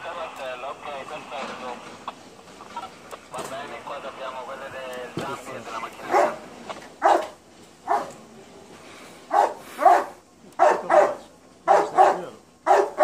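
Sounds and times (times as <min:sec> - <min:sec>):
dog barking: 0:06.0 - 0:06.4, 0:07.0 - 0:08.2, 0:09.3 - 0:13.0.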